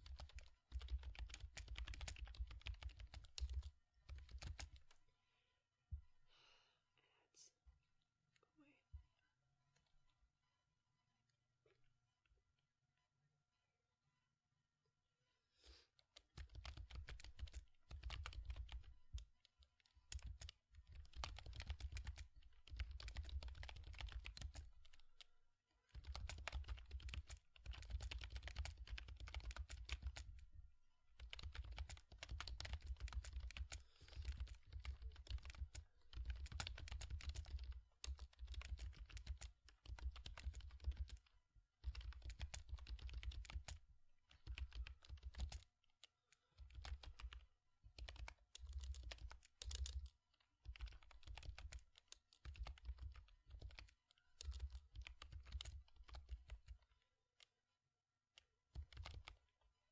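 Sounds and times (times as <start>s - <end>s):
keyboard typing: 0.0s - 5.0s, 16.0s - 57.5s, 58.4s - 59.5s.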